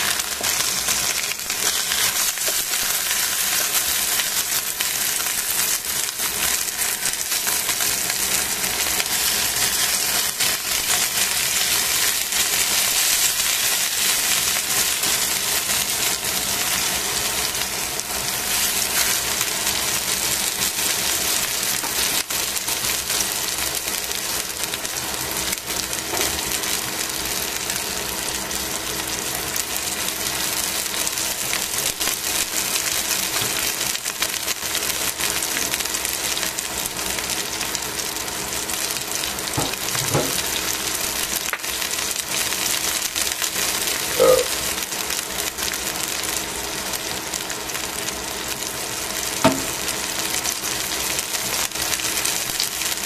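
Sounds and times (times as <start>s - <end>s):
chicken sizzling in oil: 0.0s - 53.0s.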